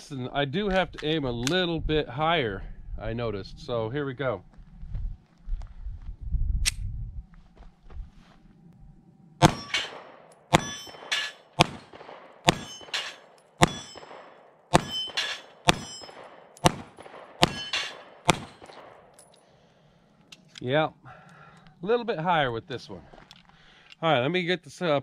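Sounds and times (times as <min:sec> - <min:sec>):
pistol shots: 0:09.4 - 0:19.1
metallic clang of steel targets: 0:09.4 - 0:19.5.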